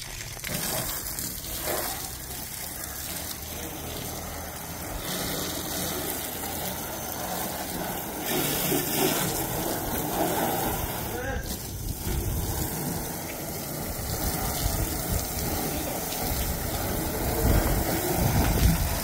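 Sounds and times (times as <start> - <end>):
hose water spraying on engine: 0.0 - 19.0.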